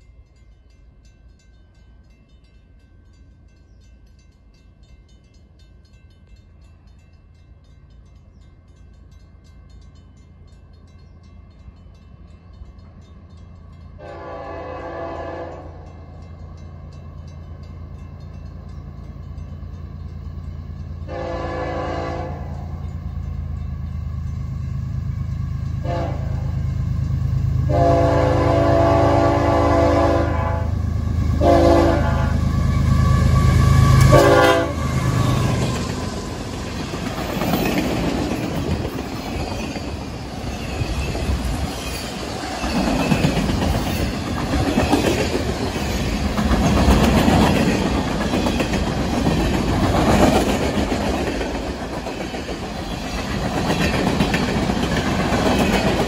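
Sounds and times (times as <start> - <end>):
train wheels clickety-clack: 7.6 - 56.0
locomotive air horn: 14.0 - 15.8, 21.1 - 22.7, 25.8 - 26.6, 27.7 - 30.8, 31.4 - 35.1.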